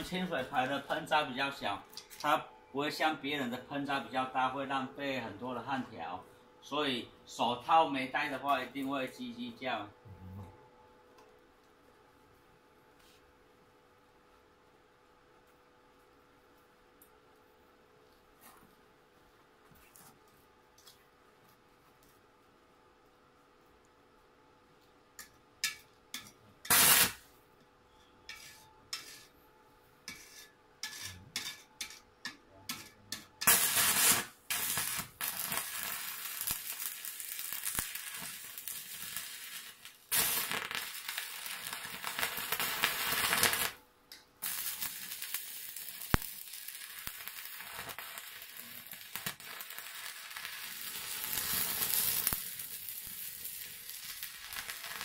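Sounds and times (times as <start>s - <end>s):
welding arc crackling: 25.2s - 27.3s, 32.7s - 43.8s, 44.4s - 55.0s.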